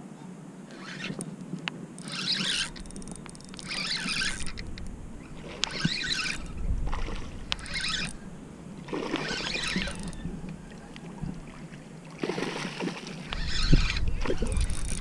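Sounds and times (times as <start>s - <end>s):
fish splashing at the surface: 11.5s - 13.3s.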